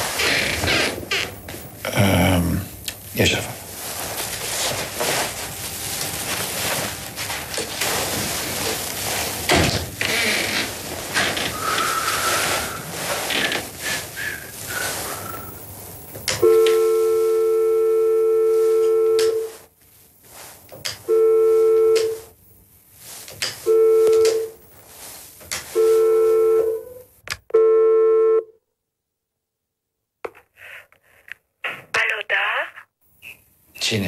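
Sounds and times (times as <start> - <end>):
desk telephone buzzing: 16.2 - 19.7, 20.9 - 22.4, 23.6 - 24.6, 25.7 - 28.6.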